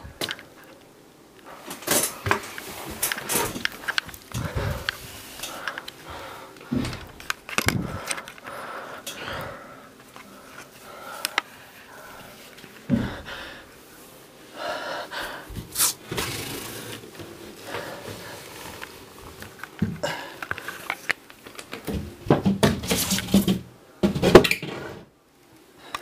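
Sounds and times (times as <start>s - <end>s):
heavy breathing: 1.5s - 15.8s, 16.7s - 19.2s, 19.8s - 21.0s.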